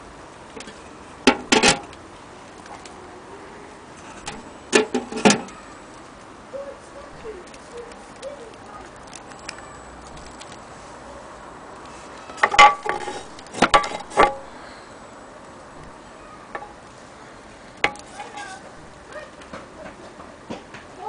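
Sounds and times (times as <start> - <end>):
metal parts clinking and knocking: 12.4 - 14.5.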